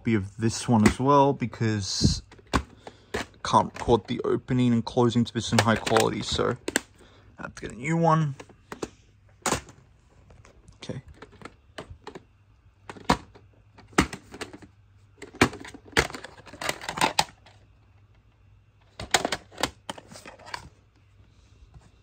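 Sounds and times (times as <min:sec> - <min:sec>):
plastic cases clicking and knocking: 0:00.8 - 0:01.0, 0:02.2 - 0:04.2, 0:05.4 - 0:07.0, 0:08.3 - 0:17.7, 0:18.8 - 0:20.8.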